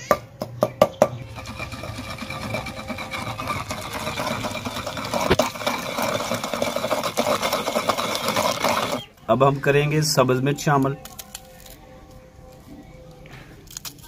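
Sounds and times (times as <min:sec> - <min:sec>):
pestle grinding in stone mortar: 0:00.7 - 0:09.2.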